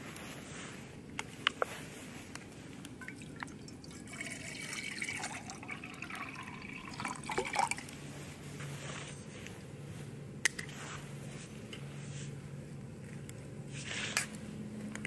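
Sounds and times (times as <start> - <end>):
water gurgle: 3.0 - 7.8
water trickling into a cup: 3.0 - 7.9.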